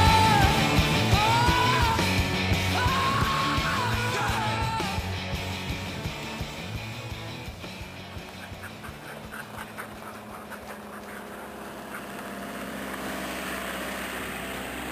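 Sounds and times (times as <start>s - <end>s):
car engine: 5.6s - 14.9s
tyres on gravel: 7.4s - 14.9s
dogs panting: 8.0s - 12.8s
dogs running on gravel: 8.0s - 13.1s.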